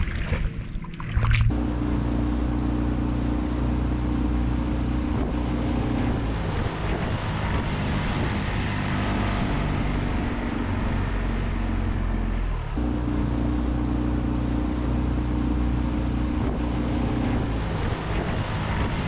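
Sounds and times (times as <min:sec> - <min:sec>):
outboard motor drone: 0:00.0 - 0:19.0
water rushing past hull: 0:00.0 - 0:19.0
wind on microphone: 0:04.5 - 0:11.7, 0:16.0 - 0:19.0.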